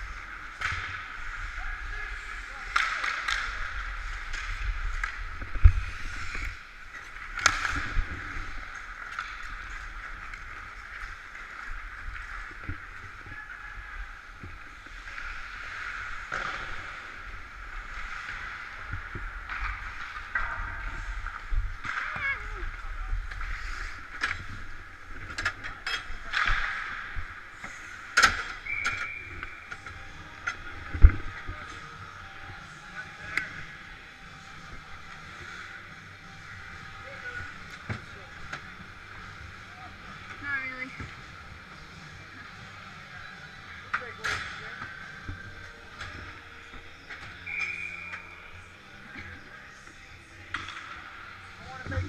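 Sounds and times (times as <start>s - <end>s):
ice skates scraping: 0.0s - 25.2s
hockey stick clack: 2.6s - 5.8s
hockey sticks knocking on boards: 2.7s - 3.7s.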